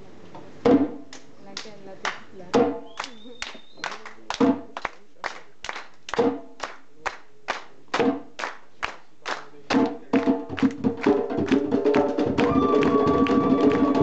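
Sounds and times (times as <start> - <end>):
hand drums playing: 2.5 - 2.9, 9.8 - 14.0.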